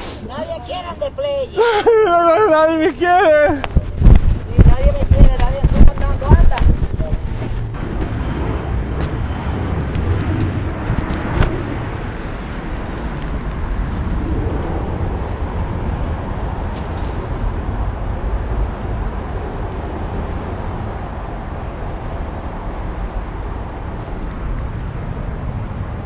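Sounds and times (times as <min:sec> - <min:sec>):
passing cars rumble and hiss: 0:00.0 - 0:04.9, 0:05.6 - 0:26.0.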